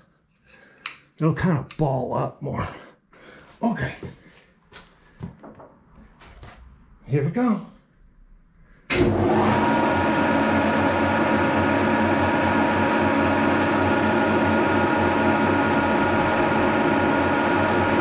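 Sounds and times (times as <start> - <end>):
milling machine running: 8.9 - 18.0.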